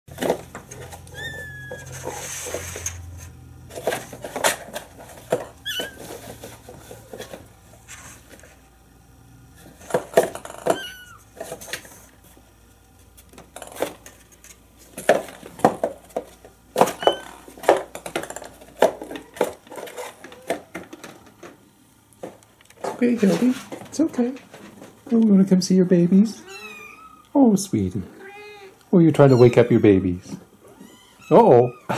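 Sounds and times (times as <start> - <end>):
kitten mewing: 26.4 - 27.3, 28.1 - 31.9.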